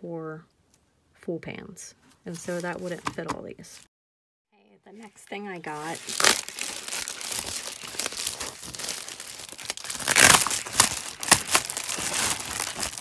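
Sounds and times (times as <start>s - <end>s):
plastic mailer crinkling: 5.7s - 13.0s.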